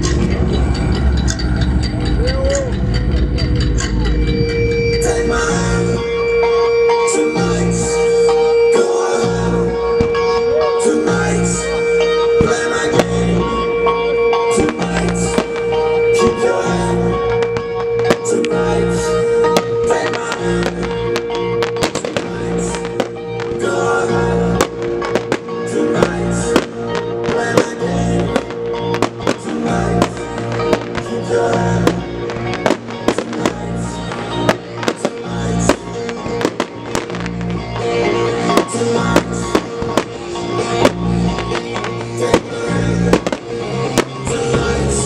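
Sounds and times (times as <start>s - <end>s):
sharp percussive beats: 0.0s - 7.0s, 17.2s - 18.6s, 19.2s - 23.7s, 24.6s - 44.6s
held synth notes: 0.0s - 45.0s
fireworks bangs: 9.8s - 11.8s, 12.4s - 13.6s, 14.4s - 45.0s.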